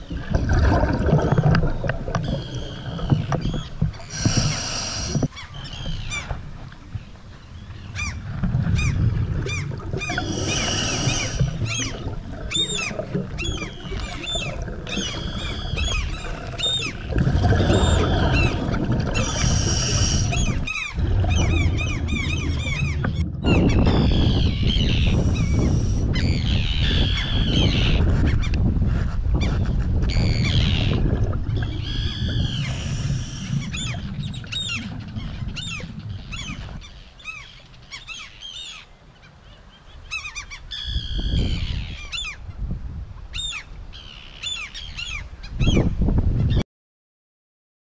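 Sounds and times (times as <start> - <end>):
underwater bubbling rumble: 0.0 - 37.1.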